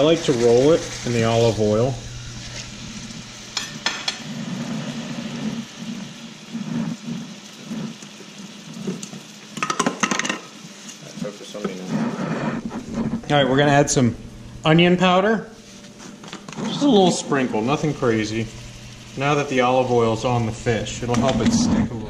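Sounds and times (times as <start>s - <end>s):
fish sizzling in a frying pan: 0.0s - 21.6s
metal utensils clicking on pan: 3.6s - 4.3s, 9.6s - 10.5s.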